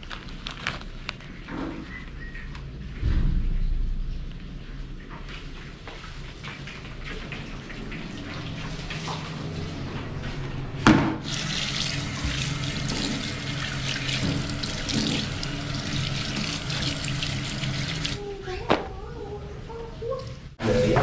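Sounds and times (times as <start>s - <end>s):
tap water running into sink: 11.2s - 18.2s.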